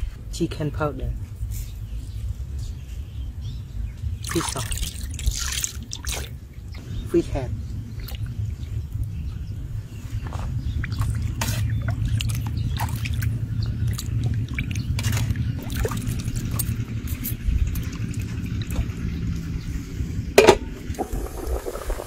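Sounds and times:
steady low rumble: 0.0s - 22.0s
splashes and drips in pot: 4.2s - 6.4s, 10.8s - 19.0s
metal pot lid clank: 20.4s - 20.8s.

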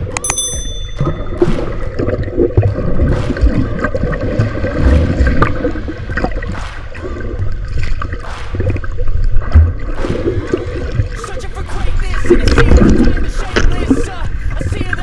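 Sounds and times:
short bright chime: 0.2s - 1.5s
underwater water churning: 1.0s - 15.0s.

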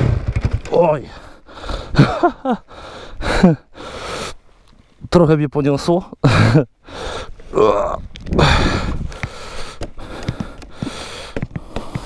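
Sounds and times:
person breathing hard: 1.0s - 4.5s, 6.3s - 7.7s, 8.4s - 12.0s.

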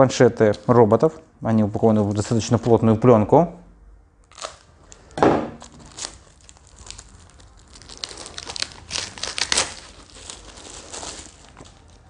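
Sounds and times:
plastic film tearing and crinkling: 2.1s - 2.6s, 4.3s - 12.0s.

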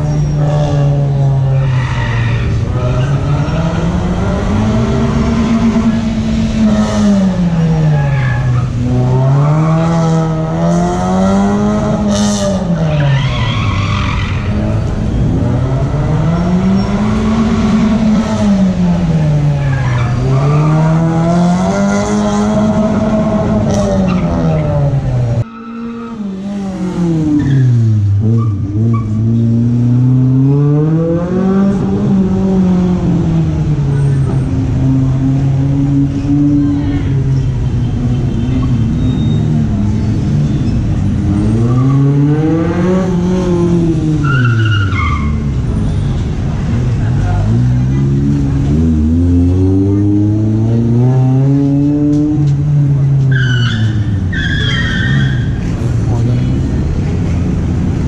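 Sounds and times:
car engine revving: 0.0s - 58.0s
tyres squealing: 53.3s - 55.8s.

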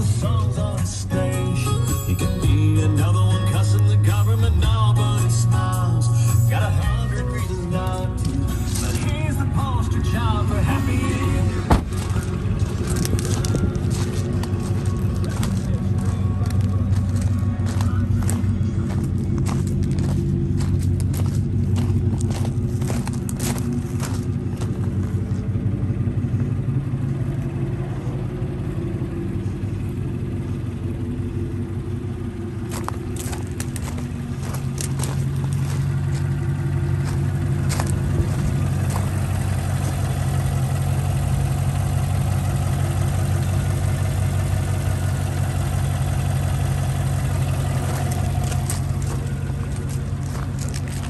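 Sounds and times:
pickup engine idling: 0.0s - 51.0s
footsteps on gravel: 7.8s - 25.7s, 32.6s - 40.4s, 46.0s - 51.0s.

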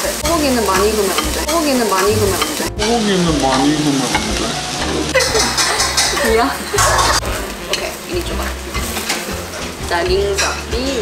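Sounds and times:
meat sizzling on a grill: 0.0s - 11.0s
gliding melody: 0.3s - 7.7s.

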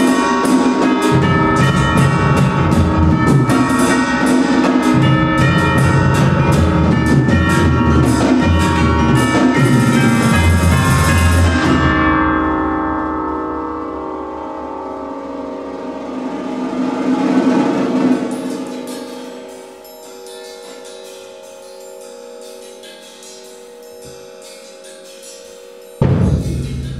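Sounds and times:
percussion ensemble drumming: 0.0s - 12.0s, 15.8s - 19.4s, 26.0s - 26.9s
pitched percussion chords: 0.0s - 26.9s.

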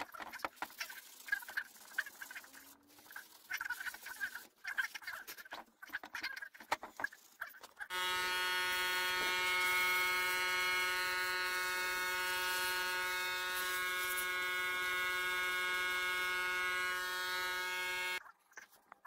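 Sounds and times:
paint sprayer motor buzzing: 7.9s - 18.2s.

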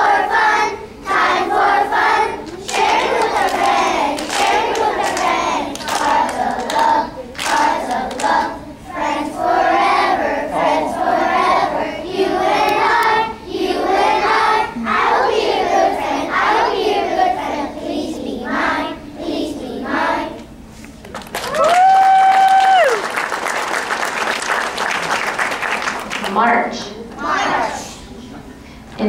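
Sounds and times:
children singing together: 0.0s - 20.5s, 27.2s - 28.2s
hand clapping: 2.4s - 8.4s, 20.8s - 26.4s.

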